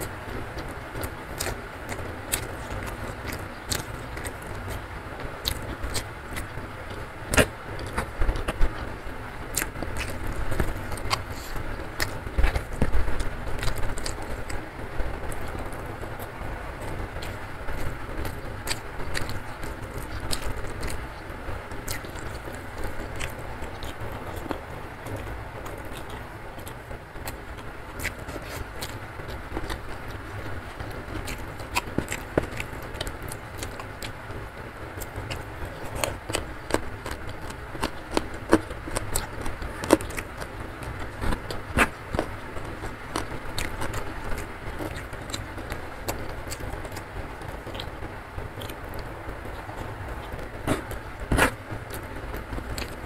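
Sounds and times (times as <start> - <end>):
chewing: 0.0 - 53.0
fingers mixing rice: 0.0 - 53.0.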